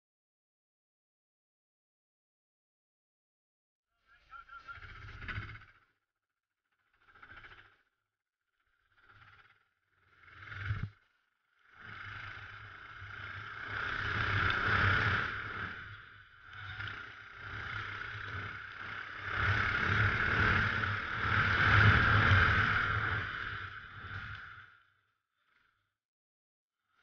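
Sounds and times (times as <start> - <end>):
kart engine: 8.8 - 25.6
wind and road noise: 10.1 - 10.9, 11.7 - 24.8.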